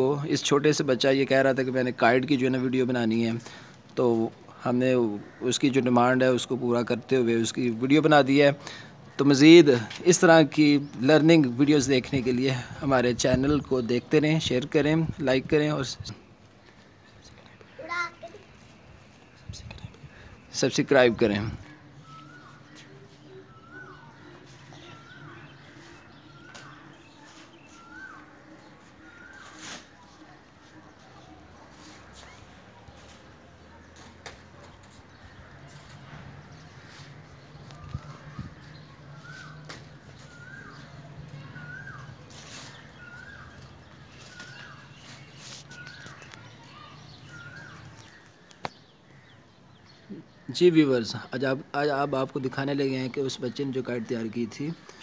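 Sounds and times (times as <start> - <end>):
bird calling: 16.6 - 51.1
rustling: 21.6 - 48.6
bird whistling call: 22.0 - 25.2, 26.3 - 28.4, 39.1 - 47.9.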